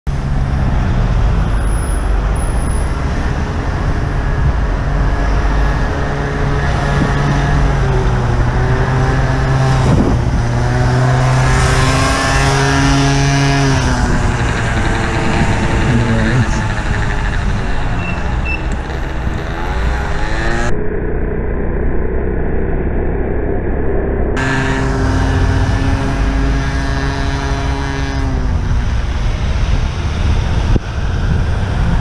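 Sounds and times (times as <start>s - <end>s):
traffic engine drone: 0.0s - 32.0s
wind rumble on microphone: 0.2s - 32.0s.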